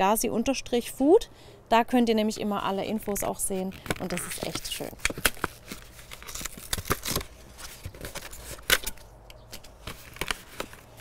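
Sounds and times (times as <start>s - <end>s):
cardboard packet crackling: 3.5s - 11.0s.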